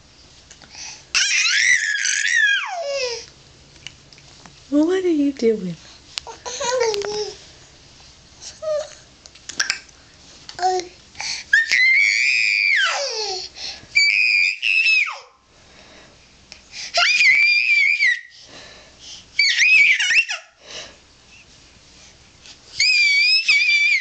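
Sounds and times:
baby squealing: 1.2s - 3.1s, 19.4s - 20.5s, 22.8s - 24.0s.

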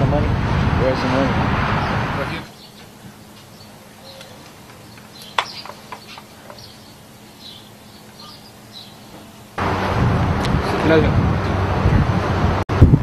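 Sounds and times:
birds chirping: 0.9s - 10.0s.

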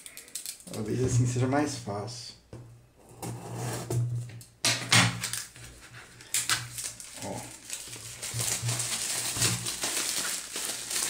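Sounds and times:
plastic wrap tearing and crackling: 5.1s - 11.0s.

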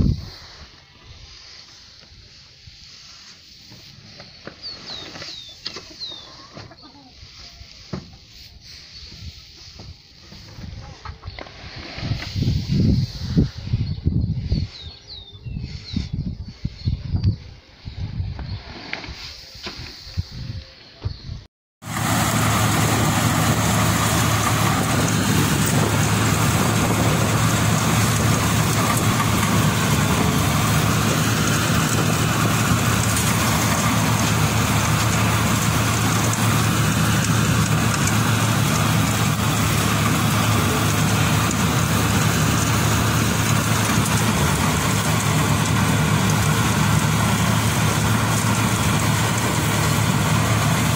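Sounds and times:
combine harvester running: 21.8s - 50.9s.

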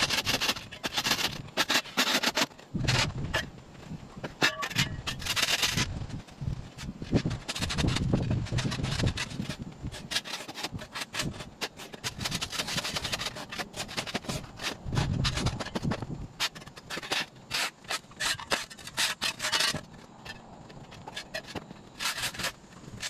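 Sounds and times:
shovel scraping concrete: 0.0s - 3.5s, 4.2s - 23.0s.

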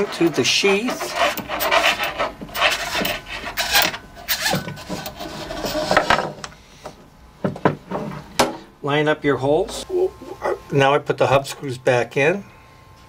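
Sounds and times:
flexible shaft rubbing in sheath: 0.0s - 6.0s.

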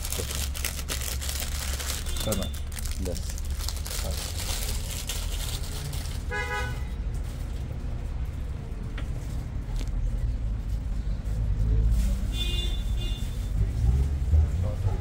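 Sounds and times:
street traffic rumble: 0.0s - 15.0s
car horn toot: 2.0s - 2.7s, 6.3s - 6.9s, 12.3s - 13.4s.

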